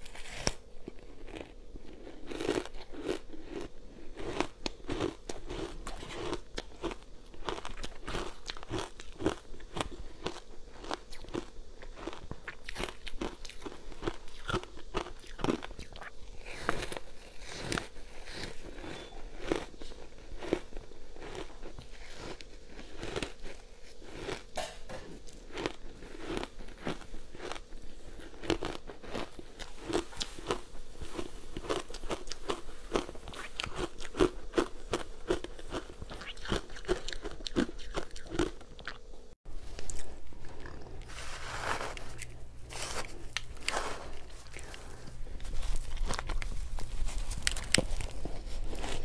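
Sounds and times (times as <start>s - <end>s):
spoon scraping shaved ice: 41.0s - 46.0s.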